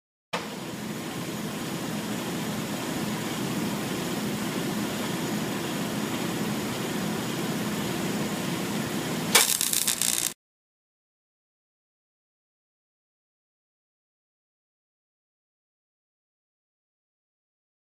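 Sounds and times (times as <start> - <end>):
welding arc harsh buzz: 9.3 - 10.4.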